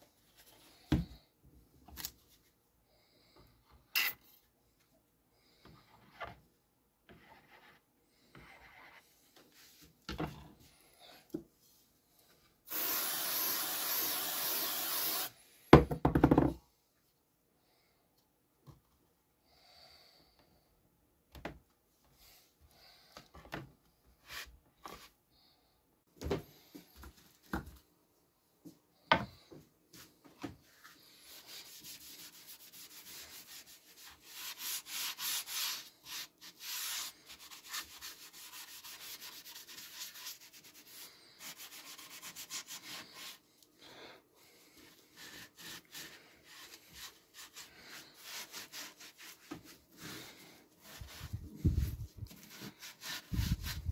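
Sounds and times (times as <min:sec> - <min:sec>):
wooden boards knocking: 0:15.8 - 0:16.6
sponge scrubbing: 0:31.2 - 0:43.4, 0:44.9 - 0:53.9.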